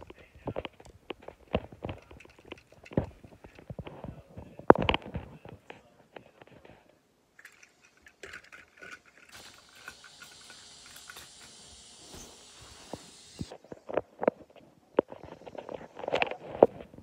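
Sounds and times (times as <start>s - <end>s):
plastic toy train clicks and rattles: 0.0s - 3.8s, 7.4s - 11.6s
toy train motor whirring: 7.4s - 13.6s.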